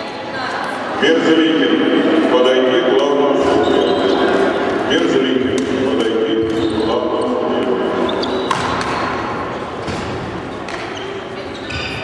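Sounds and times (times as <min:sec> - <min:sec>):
echoing voices: 0:00.0 - 0:12.0
racket hitting shuttlecock: 0:08.4 - 0:11.0.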